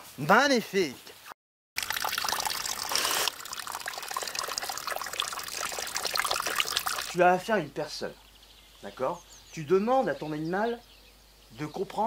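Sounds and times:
dog lapping water: 1.8 - 7.2
water trickling into stone basin: 1.8 - 7.4.

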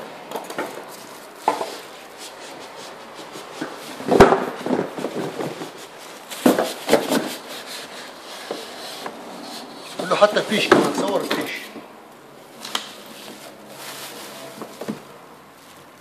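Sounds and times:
cardboard box knocks and thumps: 4.0 - 7.4.

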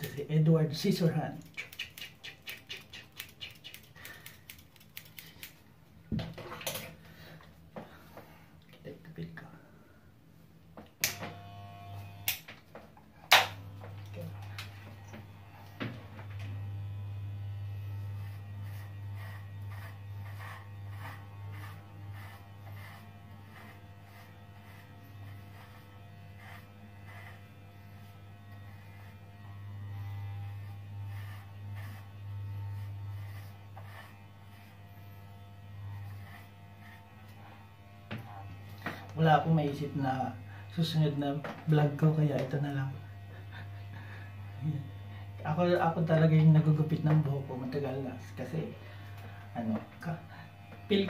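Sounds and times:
electric hair clippers buzzing: 11.0 - 51.0.

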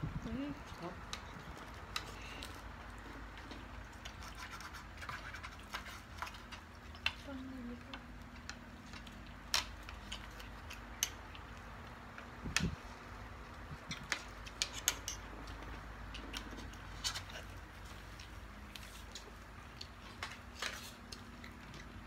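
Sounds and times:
low steady hum: 0.0 - 22.0
fingers and food clicking on plates: 0.2 - 22.0
chewing smacks: 8.3 - 12.4, 13.0 - 22.0.

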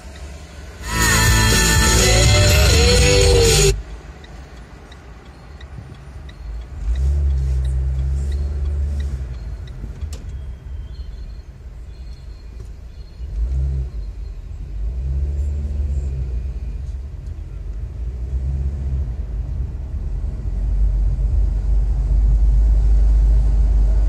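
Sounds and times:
car engine rumble: 0.0 - 24.0
road noise: 0.0 - 24.0
music: 0.8 - 3.8
faint regular ticking: 3.8 - 10.2.

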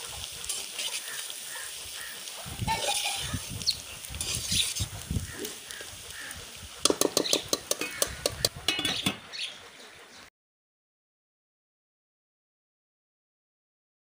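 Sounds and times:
light sizzle: 0.0 - 9.5
spatula scraping a steel pot: 0.4 - 1.3, 4.0 - 5.7, 6.8 - 9.4
spatula clinking on pot: 6.8 - 9.2
steel lid set on pot: 6.9 - 9.2.

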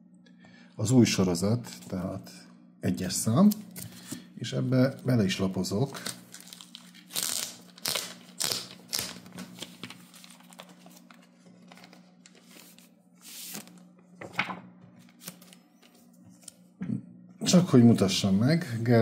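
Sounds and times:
comic book pages flipping: 5.9 - 16.6.

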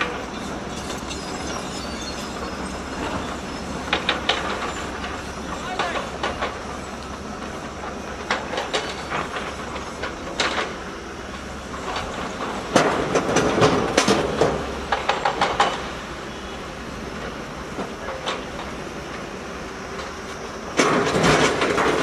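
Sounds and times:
rock and steel clattering: 0.0 - 15.9
diesel excavators running: 0.0 - 22.0.

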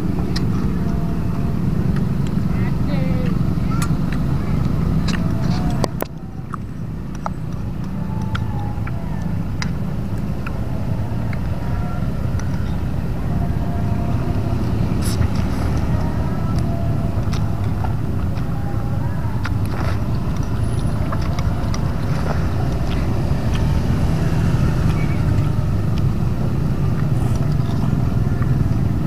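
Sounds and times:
low engine rumble: 0.0 - 29.0.

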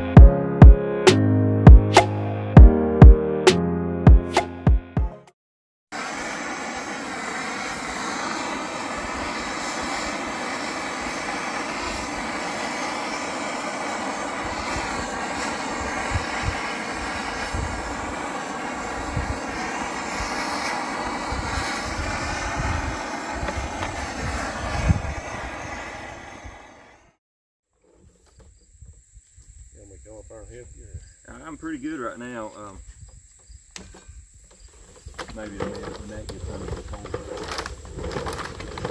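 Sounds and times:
propane torch burning: 5.9 - 27.2, 34.6 - 38.9
low gusty rumbles: 7.8 - 27.0.

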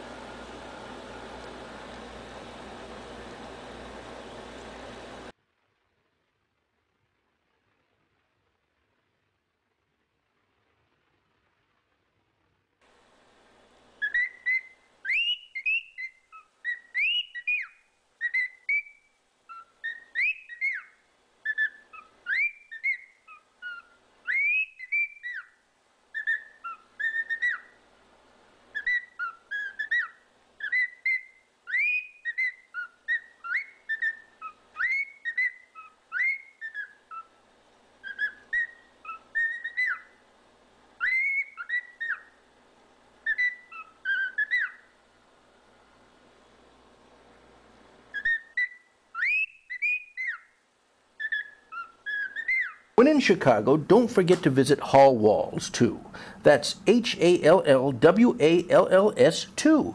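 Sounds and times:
cockatiel whistling: 14.0 - 27.8, 28.7 - 37.4, 38.0 - 40.2, 41.0 - 42.4, 43.2 - 44.9, 48.1 - 50.6, 51.2 - 54.4.

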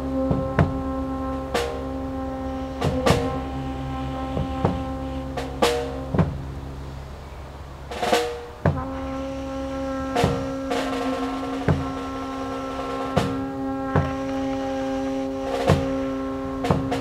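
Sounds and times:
bass drum thuds: 0.0 - 6.7, 7.9 - 17.0
brass and saxophone chord: 0.0 - 17.0
snare drum hits: 0.3 - 0.8, 10.2 - 14.7, 15.5 - 17.0.

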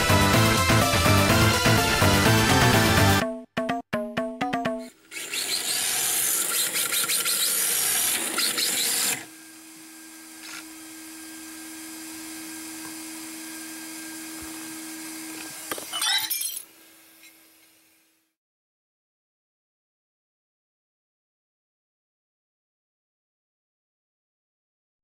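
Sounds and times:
toy car motor whining: 4.8 - 9.4, 10.3 - 10.8.

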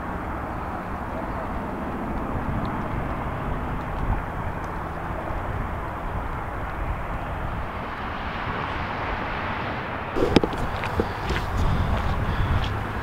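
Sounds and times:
wind buffeting the microphone: 0.0 - 13.0.

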